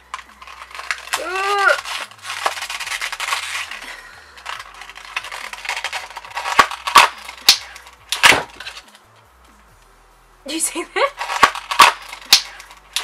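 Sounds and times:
packaging clicks and cracks: 0:00.0 - 0:08.8, 0:11.2 - 0:13.0
stiff packaging crinkling: 0:00.0 - 0:08.8.

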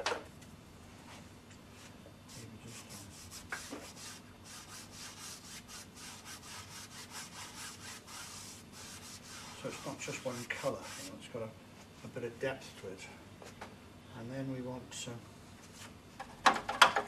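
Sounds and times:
brush scrubbing paint on canvas: 0:01.8 - 0:11.2.

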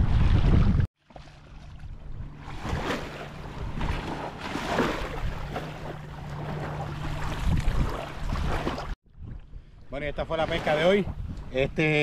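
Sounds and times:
wind on microphone: 0:00.0 - 0:00.9, 0:01.7 - 0:12.0
seawater splashing: 0:00.0 - 0:09.0.

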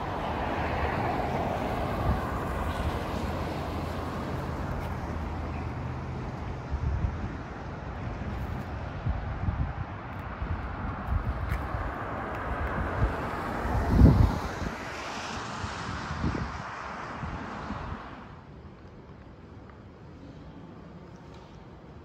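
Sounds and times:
wind buffeting microphone: 0:00.0 - 0:05.2, 0:06.4 - 0:18.4.

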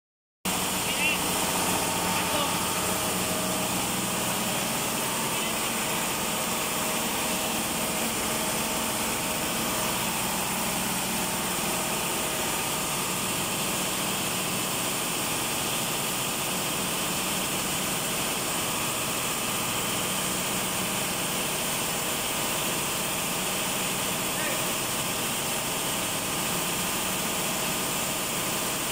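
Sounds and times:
diesel engine machinery din: 0:00.5 - 0:13.5.

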